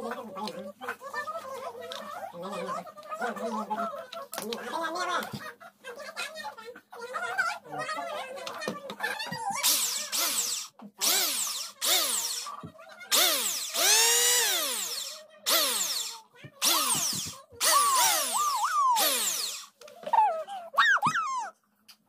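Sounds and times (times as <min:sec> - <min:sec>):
electric hand planer whining: 0:09.6 - 0:12.5, 0:13.1 - 0:19.7.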